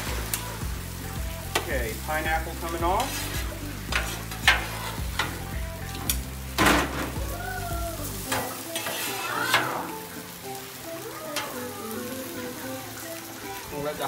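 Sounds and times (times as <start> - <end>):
food sizzling on griddle: 0.0 - 14.0
metal spatula scraping griddle: 2.4 - 7.2, 8.2 - 10.1.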